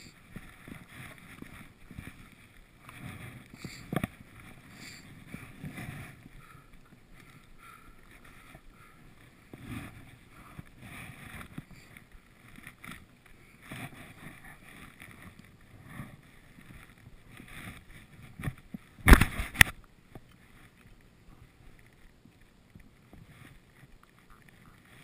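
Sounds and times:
skis swishing through snow: 0.0s - 19.5s
ski pole plants: 0.0s - 25.0s.

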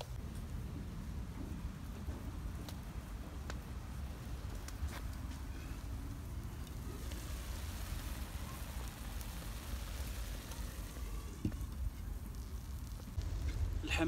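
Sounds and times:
onions sizzling: 4.0s - 14.0s.

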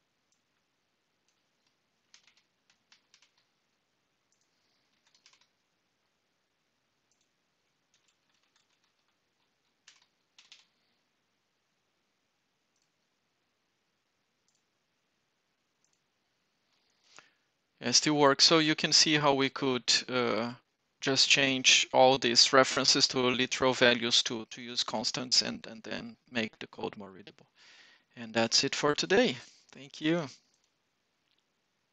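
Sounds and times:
faint keyboard typing: 0.1s - 6.1s, 7.0s - 11.2s, 12.6s - 13.2s, 14.3s - 14.9s, 15.6s - 18.1s, 28.3s - 31.6s.

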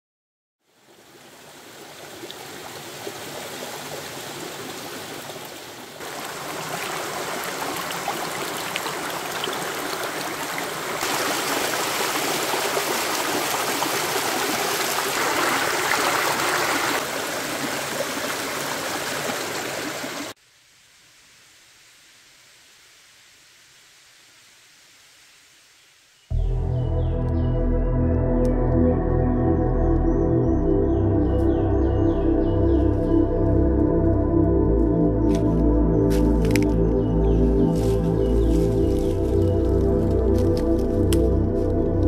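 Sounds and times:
stream running over rocks: 0.6s - 20.4s
faint hiss: 20.3s - 26.3s.

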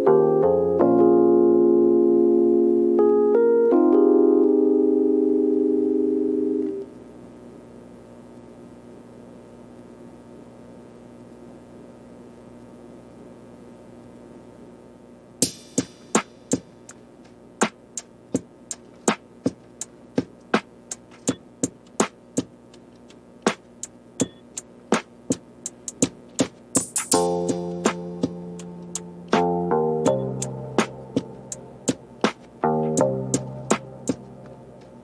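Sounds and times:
faint steady hum: 0.0s - 35.0s
drum-machine beat: 15.4s - 35.0s.

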